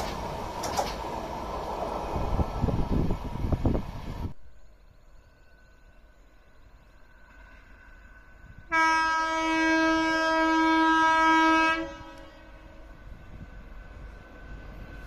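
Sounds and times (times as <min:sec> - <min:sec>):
locomotive air horn blast: 0:08.7 - 0:12.9.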